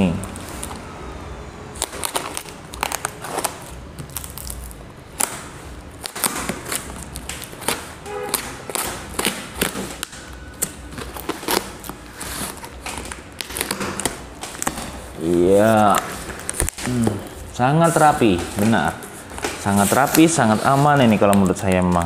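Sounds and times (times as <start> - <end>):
knife slicing packing tape: 1.8 - 15.0.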